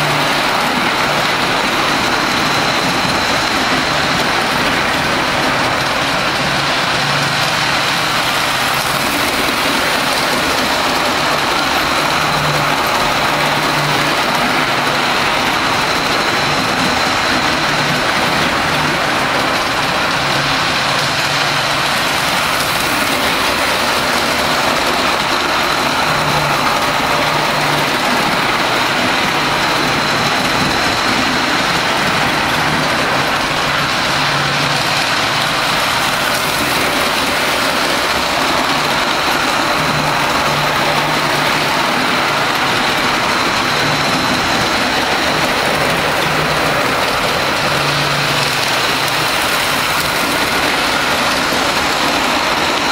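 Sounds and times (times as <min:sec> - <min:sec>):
model train wheels rumbling: 0:00.0 - 0:52.9.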